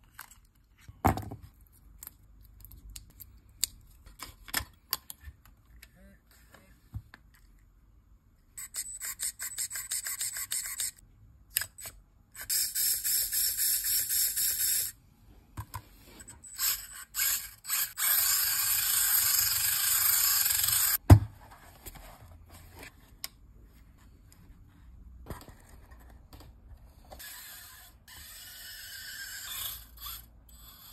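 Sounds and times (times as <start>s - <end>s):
tiny electric motor whirring: 16.5s - 21.0s, 27.2s - 30.9s.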